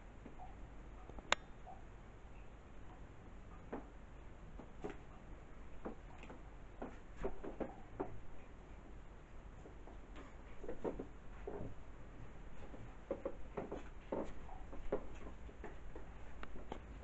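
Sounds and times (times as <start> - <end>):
soft clicks and knocks: 12.5 - 17.0.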